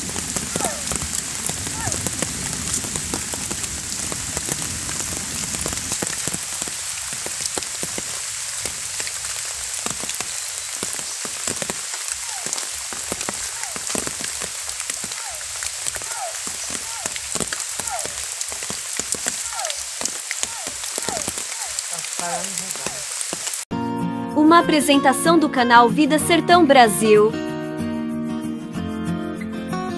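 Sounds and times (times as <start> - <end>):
rain falling on water: 0.0 - 23.7.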